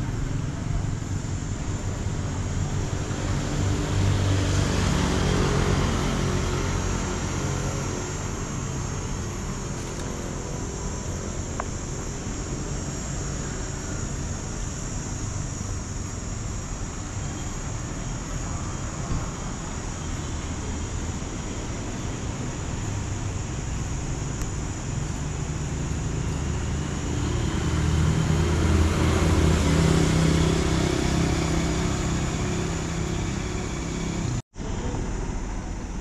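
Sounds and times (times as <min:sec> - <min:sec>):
traffic engine rumble: 0:00.0 - 0:36.0
vehicle passing: 0:02.8 - 0:10.9, 0:25.9 - 0:34.4.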